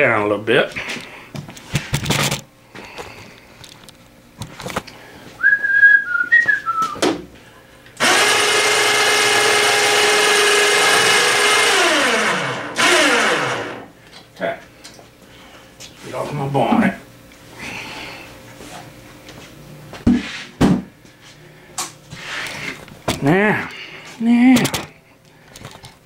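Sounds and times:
electric motor running: 8.0s - 13.9s.

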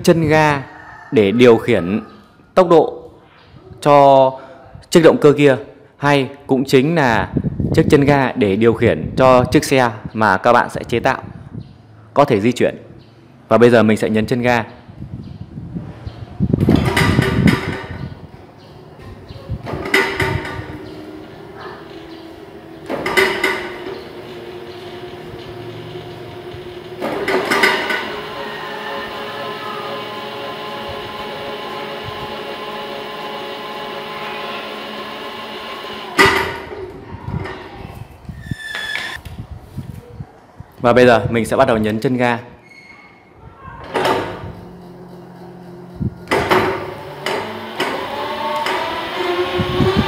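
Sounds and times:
gear noise: 18.8s - 37.6s, 43.8s - 50.0s
electric motor whine: 27.8s - 36.3s, 46.0s - 50.0s.

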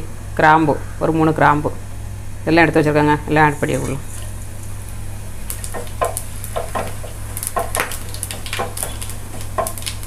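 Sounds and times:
spices sizzling in oil: 4.1s - 10.0s.

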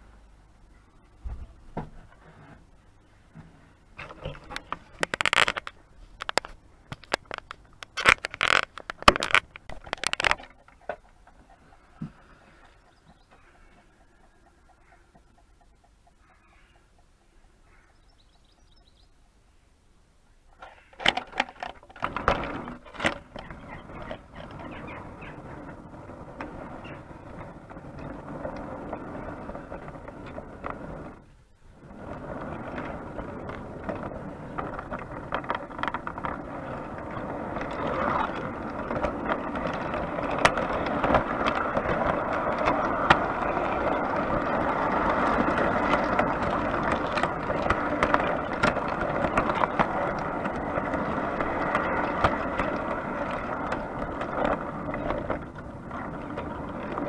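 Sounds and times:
wheels clicking over rails: 0.0s - 19.4s, 20.4s - 57.0s
model train wheels rumbling: 20.5s - 57.0s.

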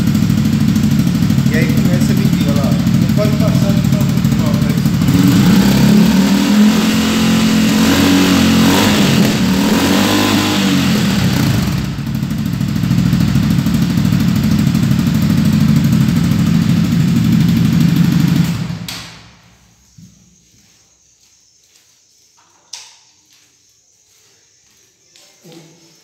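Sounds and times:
motorcycle engine at high revs: 0.0s - 19.5s.

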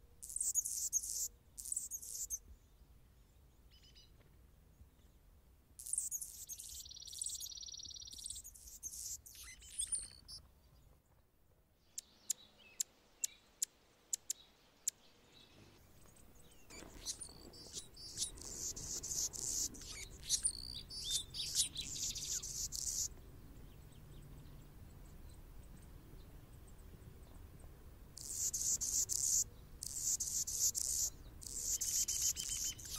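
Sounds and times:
hummingbird scratchy buzzy song: 16.7s - 23.1s.

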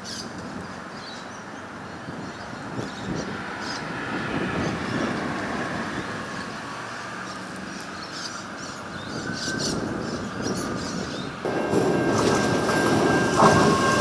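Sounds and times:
electric train pulling away: 8.8s - 14.0s.

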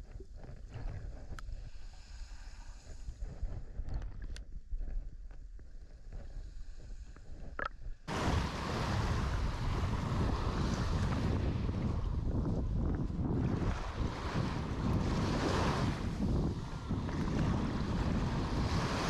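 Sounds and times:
underwater low rumble: 0.0s - 19.0s
wind buffeting microphone: 2.8s - 19.0s
sharp underwater clicks: 7.4s - 7.9s
small waves washing on shore: 8.1s - 19.0s.

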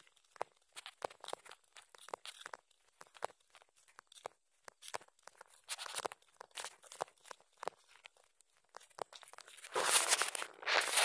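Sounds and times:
footsteps on gravel: 9.5s - 11.0s.

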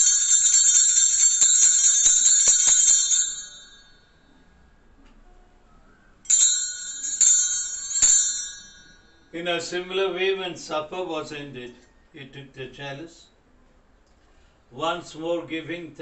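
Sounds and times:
altar bells jingling: 0.0s - 4.3s, 6.3s - 9.4s.

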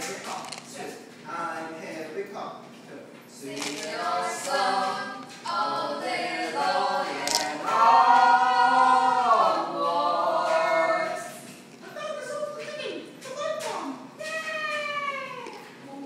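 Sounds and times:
group singing unaccompanied: 3.4s - 11.6s.

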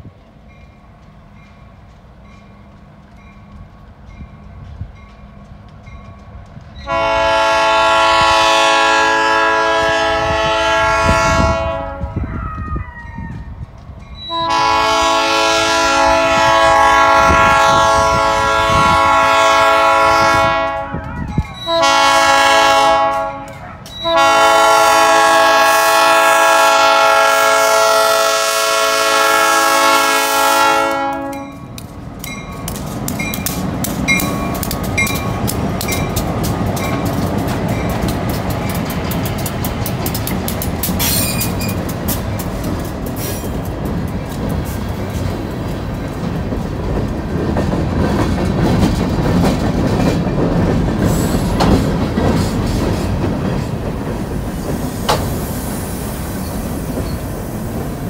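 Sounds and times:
train rumble: 0.0s - 58.0s
train air horn blasts: 6.8s - 12.3s, 14.3s - 31.7s.

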